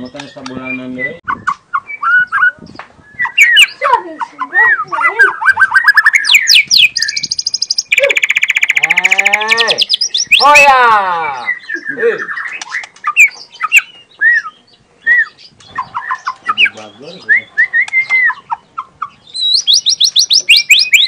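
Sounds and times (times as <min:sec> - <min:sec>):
songbird singing whistles: 0:00.1 - 0:03.8, 0:04.6 - 0:10.4, 0:11.4 - 0:18.6, 0:19.2 - 0:21.0.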